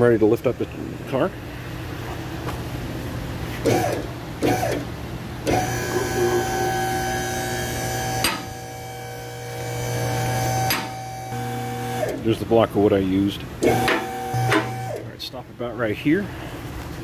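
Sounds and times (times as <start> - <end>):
hydraulic pump motor whine: 3.7 - 12.3, 13.6 - 15.1.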